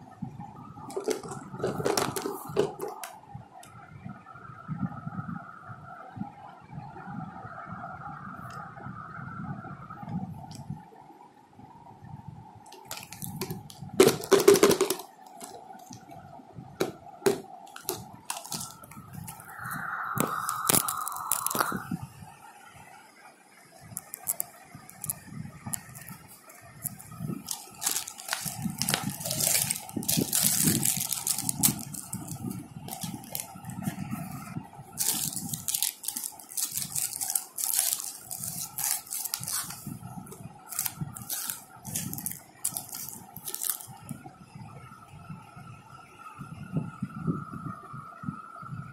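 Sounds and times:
plastic pieces rattling: 0:00.9 - 0:03.1, 0:12.7 - 0:16.0, 0:17.3 - 0:21.8, 0:23.9 - 0:39.9, 0:40.6 - 0:44.1
plastic wrappers crinkling: 0:00.9 - 0:03.2, 0:12.7 - 0:16.2, 0:16.8 - 0:21.9, 0:23.9 - 0:44.2.

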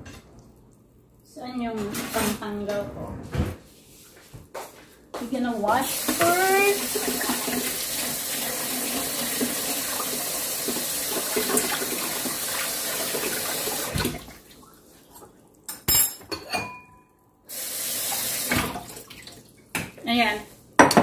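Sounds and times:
tap running into sink: 0:06.0 - 0:08.1.

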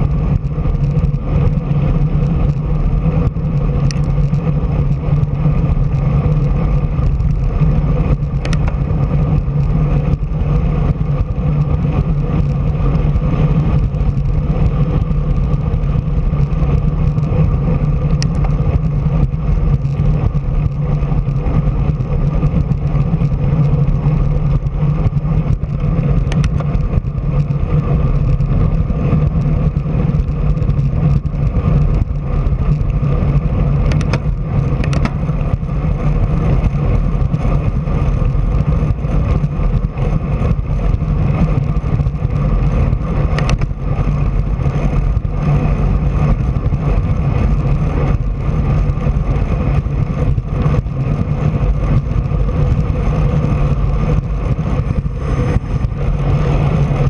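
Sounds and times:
road noise: 0:00.0 - 0:57.0
wind rush: 0:00.0 - 0:57.0
faint clicks: 0:08.3 - 0:08.8.

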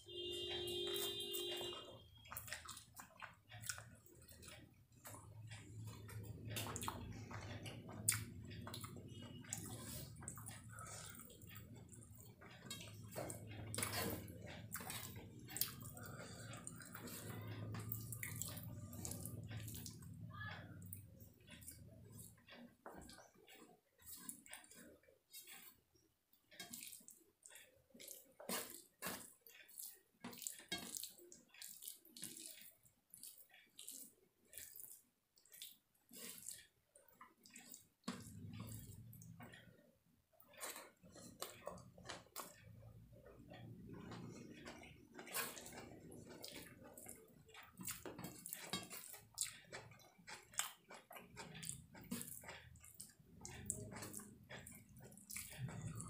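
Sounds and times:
chewing: 0:00.8 - 0:56.0
fingers squishing food: 0:40.4 - 0:56.0.

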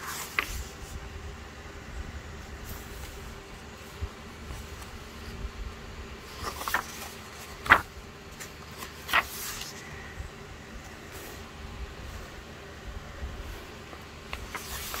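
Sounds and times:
paper pages rustling: 0:00.0 - 0:01.0, 0:02.5 - 0:05.4, 0:06.2 - 0:10.1, 0:13.3 - 0:15.0
sharp page flaps: 0:06.3 - 0:09.8, 0:14.3 - 0:15.0.

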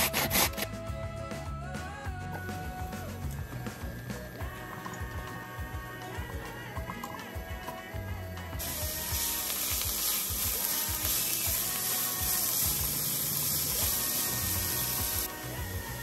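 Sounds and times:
vegetables sizzling in oil: 0:08.6 - 0:16.0.

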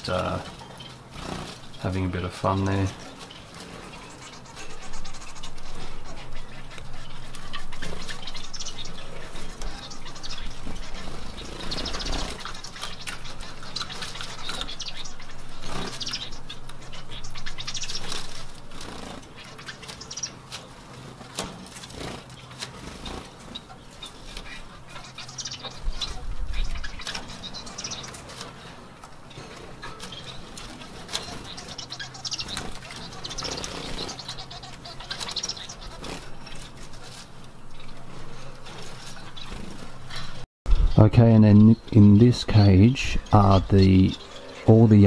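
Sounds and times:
finches chirping and calling: 0:00.0 - 0:45.0
birds hopping in cage clicks: 0:17.6 - 0:24.5.

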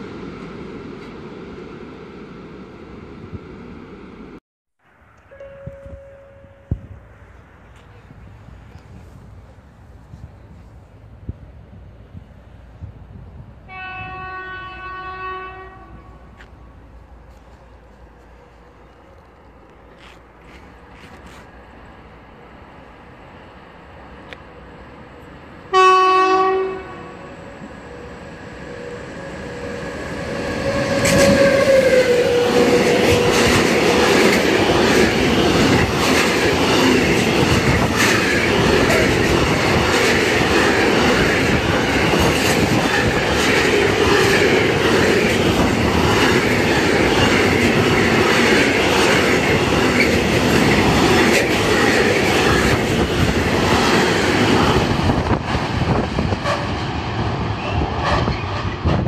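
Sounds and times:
locomotive whine: 0:05.1 - 0:11.0, 0:13.6 - 0:59.0
locomotive horn: 0:13.7 - 0:16.4, 0:25.7 - 0:27.3, 0:30.6 - 0:33.3, 0:56.4 - 0:56.8.

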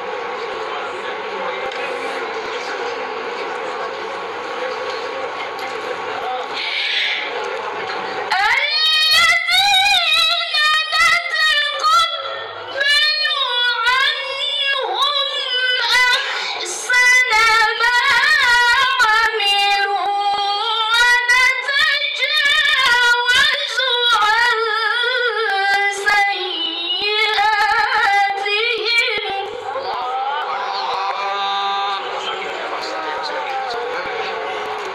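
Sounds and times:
woman chanting melodically: 0:08.3 - 0:31.8.

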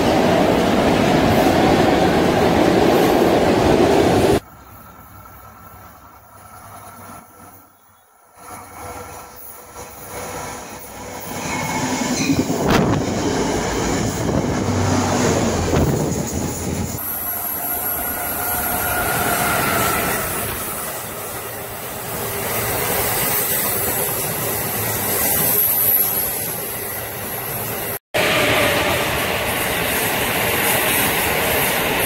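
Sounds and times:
train wheels rumbling and clacking: 0:00.0 - 0:32.0
high wheel squeal: 0:06.6 - 0:12.8, 0:13.4 - 0:21.8, 0:22.5 - 0:31.6.

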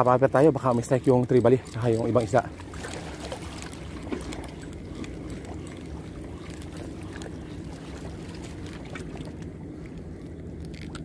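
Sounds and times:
distant hum: 0:00.0 - 0:11.0
faint ticks: 0:00.1 - 0:02.6
small waves on rocks: 0:00.1 - 0:10.1.

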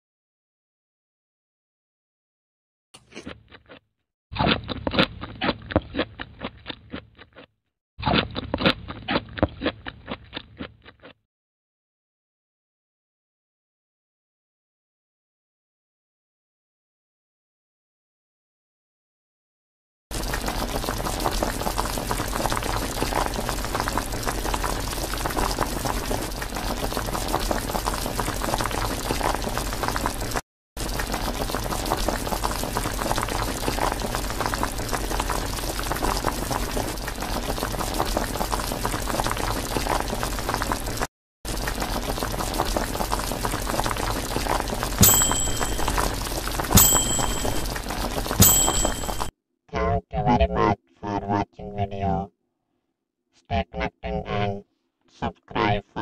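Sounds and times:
liquid sucked through a straw: 0:20.1 - 0:45.0
desk service bell dinging: 0:45.0 - 0:46.0, 0:46.8 - 0:47.7, 0:48.4 - 0:49.3.

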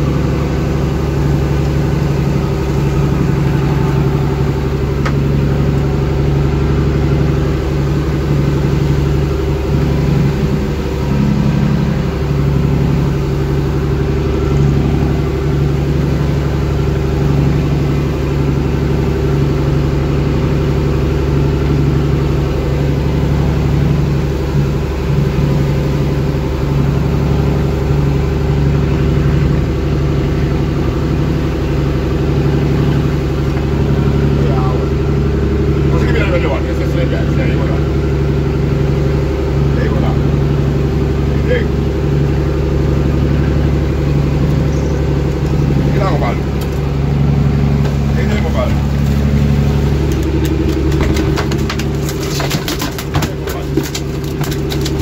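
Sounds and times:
water rushing past hull: 0:00.0 - 0:52.0
boat engine running: 0:00.0 - 0:55.0.

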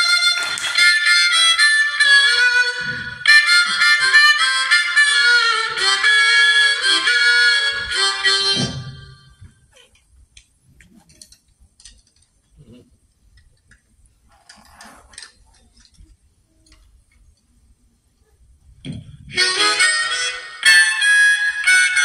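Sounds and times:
harmonica chords: 0:00.0 - 0:09.4, 0:19.3 - 0:22.0.

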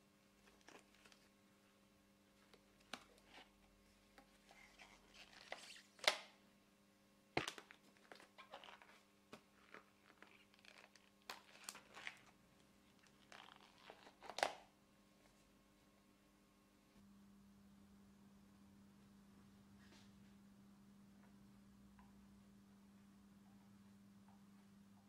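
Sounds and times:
rubbery glove rustling: 0:07.4 - 0:14.6.

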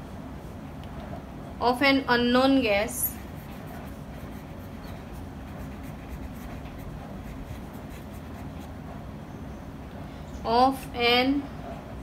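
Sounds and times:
steady low hum: 0:00.0 - 0:12.0
marker pen scratching on paper: 0:03.2 - 0:08.8.

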